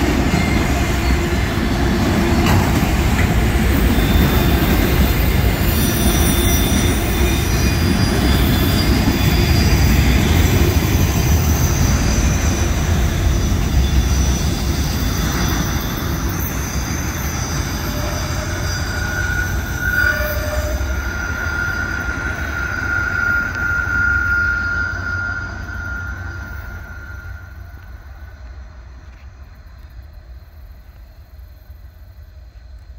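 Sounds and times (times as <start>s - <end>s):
train wheels rumbling: 0.0s - 32.9s
high-pitched wheel squeal: 3.7s - 28.2s.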